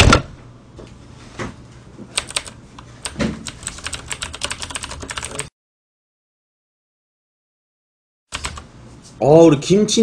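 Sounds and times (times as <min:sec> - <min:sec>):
computer keyboard typing: 0:02.2 - 0:05.5, 0:08.3 - 0:08.6.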